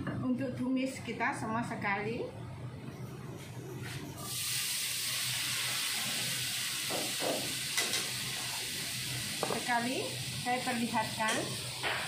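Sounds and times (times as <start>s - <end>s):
vegetables sizzling in hot oil: 4.3s - 12.0s.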